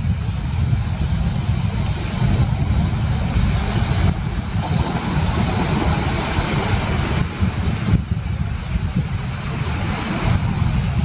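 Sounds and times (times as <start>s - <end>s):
ocean surf hiss: 0.0s - 11.0s
wind buffeting microphone: 0.0s - 11.0s.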